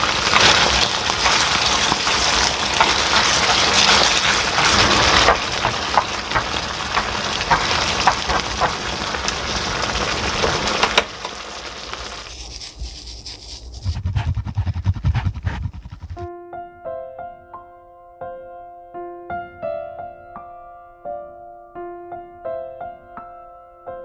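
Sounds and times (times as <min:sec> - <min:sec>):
sauce sizzling in a pan: 0:00.0 - 0:13.7.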